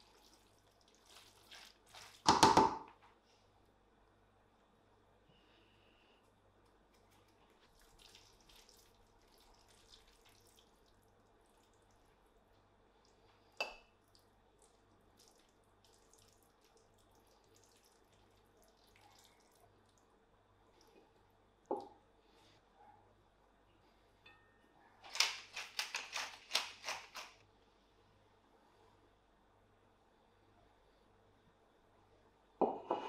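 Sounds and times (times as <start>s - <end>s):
wet scraping of pasta on plate: 0.0s - 2.3s, 6.9s - 11.9s, 25.1s - 27.4s.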